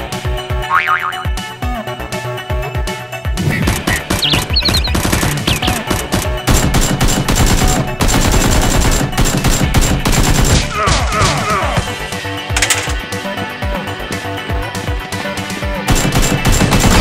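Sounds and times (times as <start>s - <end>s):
background music: 0.0s - 17.0s
machine-gun fire sound effect: 3.6s - 10.7s, 15.9s - 17.0s.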